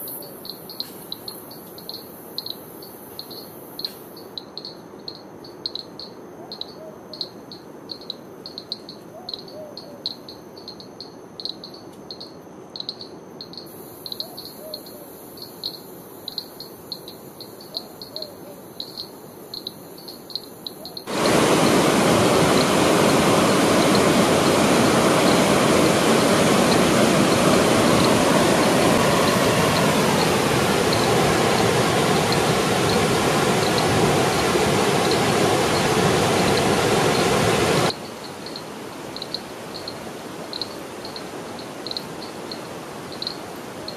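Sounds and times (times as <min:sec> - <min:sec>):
insect chirping: 0:00.0 - 0:21.8, 0:22.4 - 0:43.9
waterfall rushing: 0:21.1 - 0:38.0.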